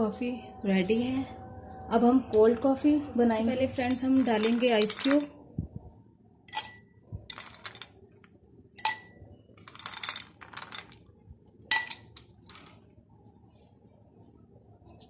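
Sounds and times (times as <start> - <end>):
ice cubes clinking in glass: 3.9 - 5.3, 7.3 - 7.9, 9.6 - 11.1.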